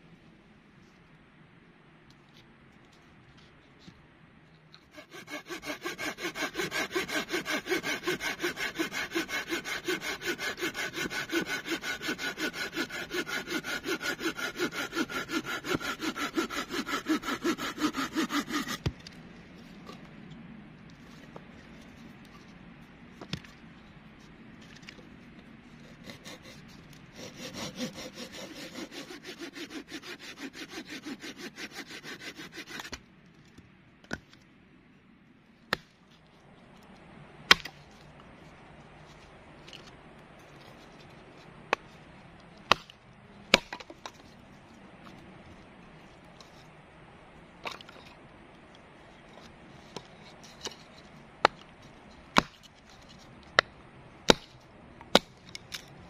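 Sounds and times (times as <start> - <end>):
hand saw cutting log: 4.9 - 18.9, 25.8 - 33.0, 52.4 - 52.7, 54.3 - 54.5.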